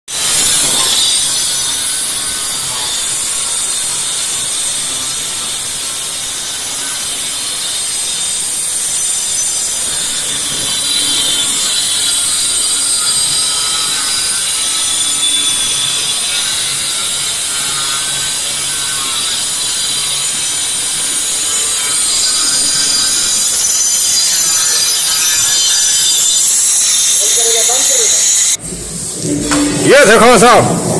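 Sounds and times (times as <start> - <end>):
angle grinder motor whine: 0.1 - 30.0.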